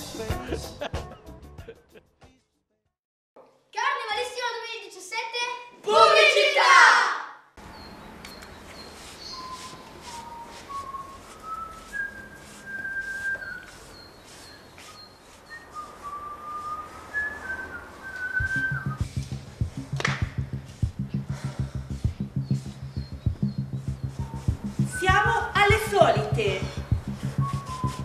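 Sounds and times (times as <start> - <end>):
person whistling a slow tune: 9.5 - 13.8, 14.9 - 19.2, 24.1 - 25.2, 26.7 - 28.0
low rhythmic beat: 18.4 - 28.0.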